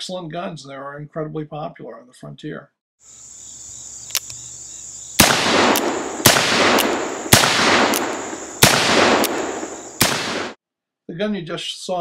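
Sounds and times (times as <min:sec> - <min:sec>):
light click: 0:04.0 - 0:04.4
revolver shots: 0:05.2 - 0:10.6.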